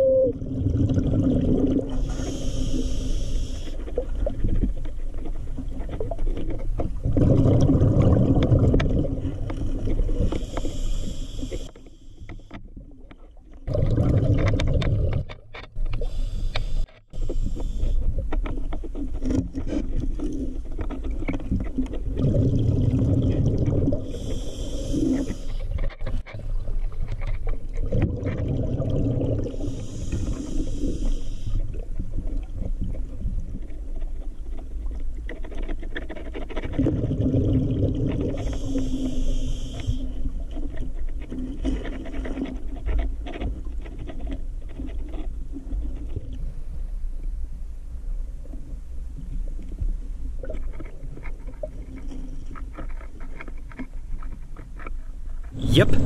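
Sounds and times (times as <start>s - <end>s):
exhale bubbling rumble: 0.0s - 4.8s, 6.9s - 11.6s, 13.6s - 15.5s, 22.0s - 25.4s, 27.7s - 31.0s, 36.8s - 39.5s
diver breathing through regulator: 1.9s - 3.9s, 10.1s - 12.5s, 15.9s - 18.2s, 22.2s - 25.8s, 29.3s - 31.7s, 38.2s - 40.3s
regulator inhale hiss: 2.0s - 3.8s, 10.2s - 12.5s, 16.0s - 18.2s, 24.0s - 25.7s, 29.5s - 31.7s, 38.4s - 40.3s
small scrapes and clicks: 2.0s - 7.0s, 8.3s - 22.2s, 24.0s - 28.1s, 29.5s - 37.1s, 38.1s - 46.5s, 49.6s - 56.0s.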